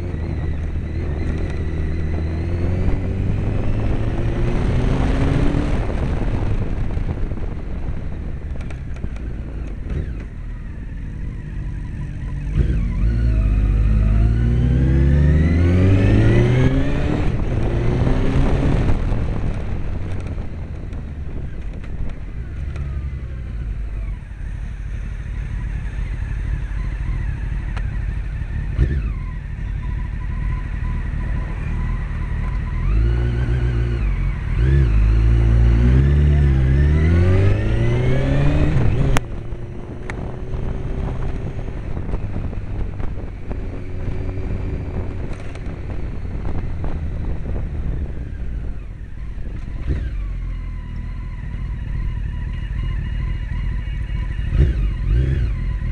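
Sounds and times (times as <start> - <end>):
motorcycle engine revving: 0.0 - 55.9.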